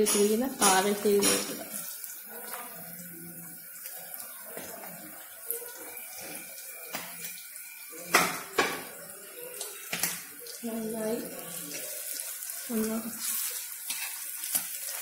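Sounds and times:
vegetables sizzling in hot oil: 0.0s - 15.0s.

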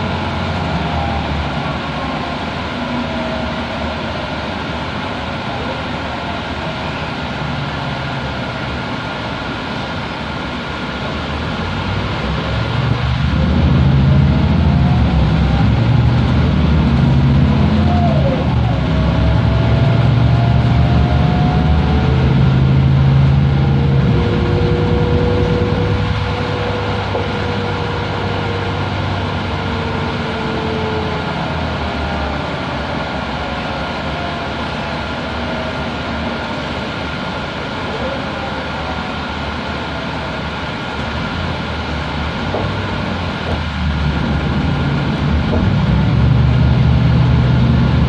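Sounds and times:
bus engine running under load: 0.0s - 48.0s
thin whine: 13.2s - 48.0s.

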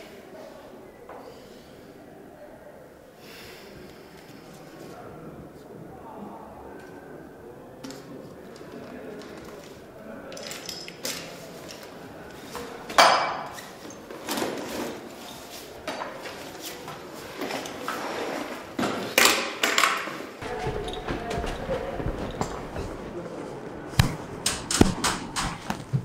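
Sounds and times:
backpack rustling and clattering: 20.1s - 23.2s.

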